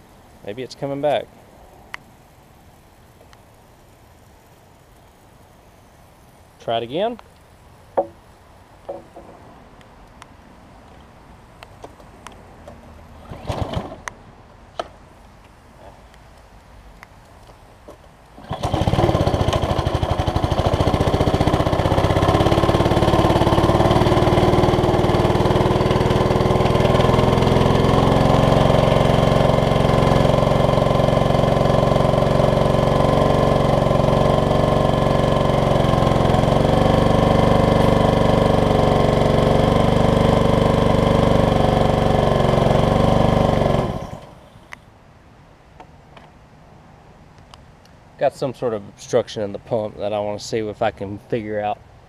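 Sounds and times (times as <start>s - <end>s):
pressure washer engine running: 18.4s - 44.5s.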